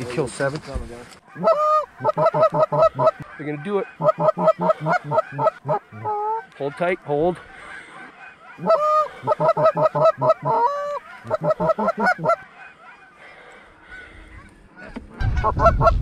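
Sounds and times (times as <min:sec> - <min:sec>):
geese honking: 0:01.3 - 0:16.0.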